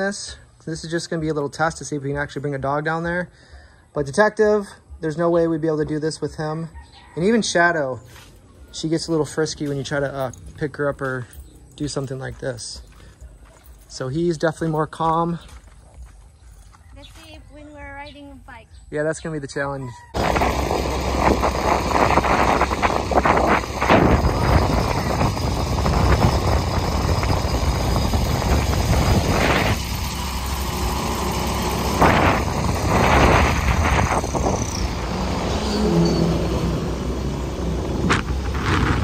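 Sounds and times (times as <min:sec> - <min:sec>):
motorcycle road noise: 0:04.0 - 0:39.0
wind rushing over microphone: 0:20.1 - 0:39.0.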